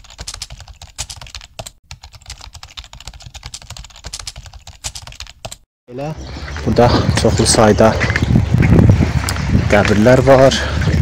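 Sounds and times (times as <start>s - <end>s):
keyboard typing clicks: 0.0s - 5.6s.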